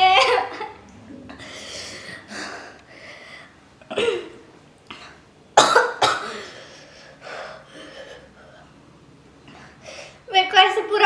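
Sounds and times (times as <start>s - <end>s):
woman coughing: 3.9s - 4.4s, 5.6s - 6.6s.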